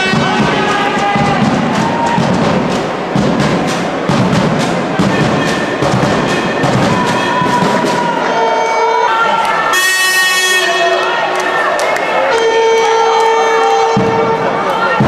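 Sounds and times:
drum beating steady rhythm: 0:00.0 - 0:08.9, 0:12.2 - 0:15.0
crowd chanting: 0:00.0 - 0:15.0.

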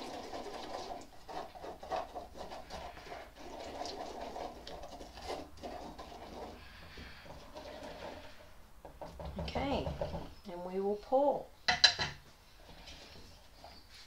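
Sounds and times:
spatula scraping cement in bowl: 0:00.0 - 0:08.6.

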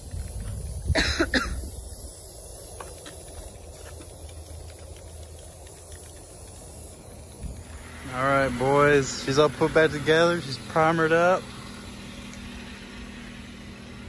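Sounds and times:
person coughing: 0:00.9 - 0:01.7.

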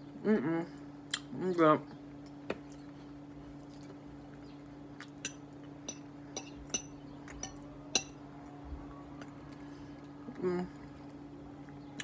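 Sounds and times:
fork clinking on glass dish: 0:05.2 - 0:08.2.

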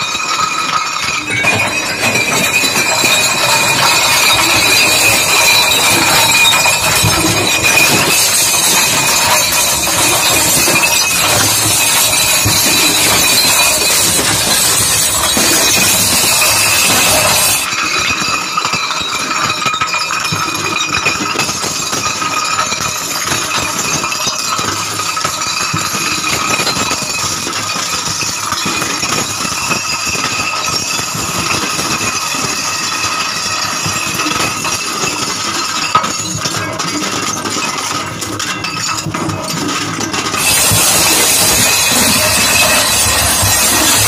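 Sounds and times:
glass clinking and crunching: 0:00.0 - 0:44.0
loud hiss: 0:40.4 - 0:44.0
mixer motor whine: 0:40.4 - 0:44.0.

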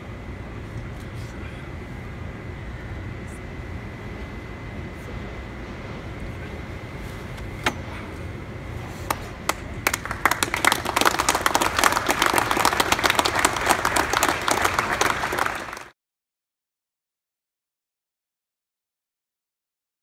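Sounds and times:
audience applauding: 0:09.1 - 0:16.0.

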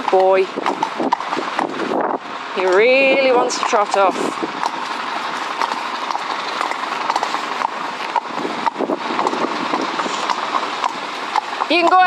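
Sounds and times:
hooves clip-clopping on a road: 0:00.0 - 0:12.0
steady rushing noise: 0:04.0 - 0:11.9.

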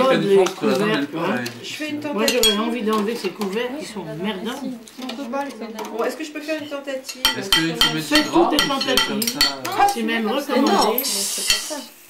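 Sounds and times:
cutlery clinking on plates: 0:02.2 - 0:03.7, 0:07.0 - 0:10.0, 0:10.7 - 0:11.8
meat sizzling on hot stone: 0:07.0 - 0:12.0.

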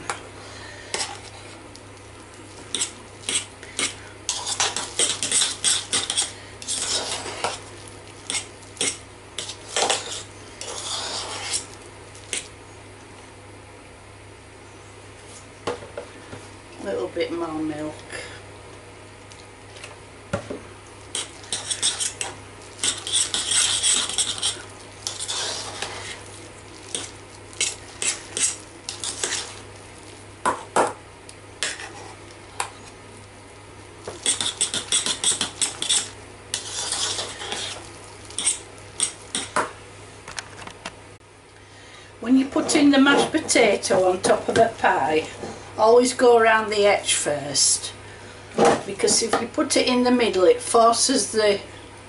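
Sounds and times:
fork scraping a metal saucepan: 0:02.7 - 0:07.6, 0:08.3 - 0:11.7, 0:21.1 - 0:26.2, 0:26.9 - 0:29.6, 0:34.2 - 0:39.6.

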